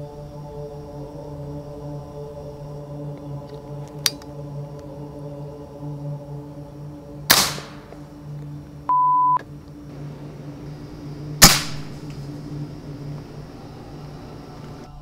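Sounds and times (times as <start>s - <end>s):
air rifle shots: 7.3s - 8.0s, 11.3s - 12.2s
short beep tone: 8.9s - 9.4s.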